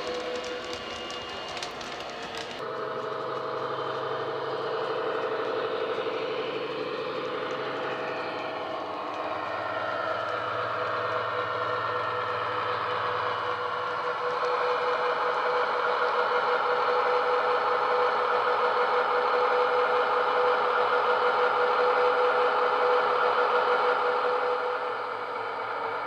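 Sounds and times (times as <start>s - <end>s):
diesel engine drone from small speaker: 0.0s - 26.0s.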